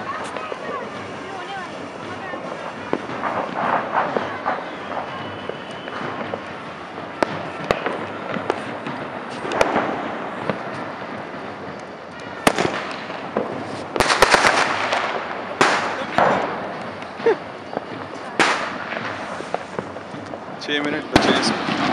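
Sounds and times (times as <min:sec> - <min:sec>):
firecrackers crackling pops: 0:00.0 - 0:21.9
firework bangs: 0:00.0 - 0:21.9.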